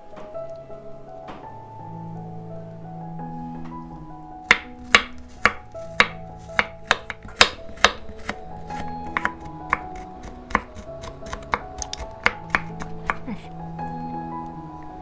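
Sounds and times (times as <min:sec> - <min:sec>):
soft background music: 0:00.0 - 0:15.0
knife chopping on cutting board: 0:04.5 - 0:13.2.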